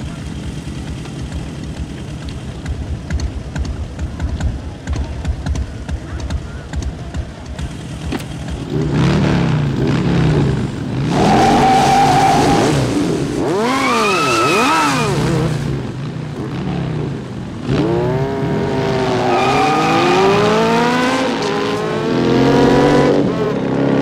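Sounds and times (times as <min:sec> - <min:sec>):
motorcycle engines revving: 0:00.0 - 0:24.0
tyre squeal: 0:13.6 - 0:15.4, 0:19.0 - 0:20.5.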